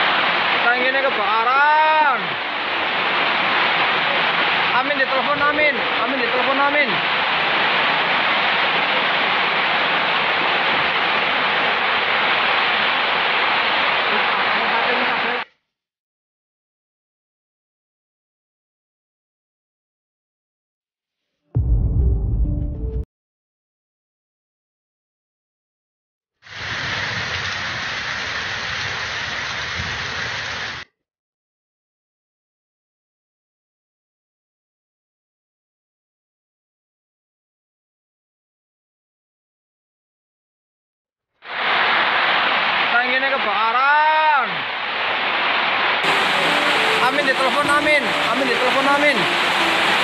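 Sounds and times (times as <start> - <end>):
loud steady rushing noise: 0.0 - 15.4, 41.5 - 50.0.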